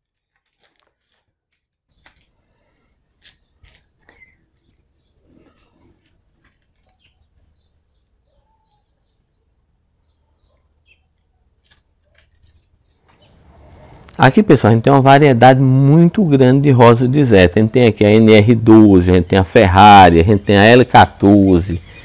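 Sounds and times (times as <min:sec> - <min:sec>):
faint bird chirps: 0:01.9 - 0:14.1, 0:20.4 - 0:22.0.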